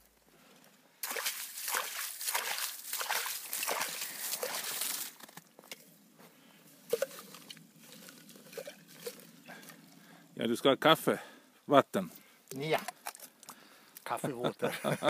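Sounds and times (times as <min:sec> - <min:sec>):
water sloshing faintly: 0:01.0 - 0:05.2, 0:06.7 - 0:10.3.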